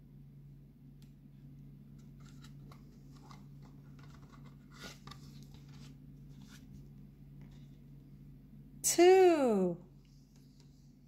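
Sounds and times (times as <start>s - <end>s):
cardboard page turning: 2.1s - 6.7s.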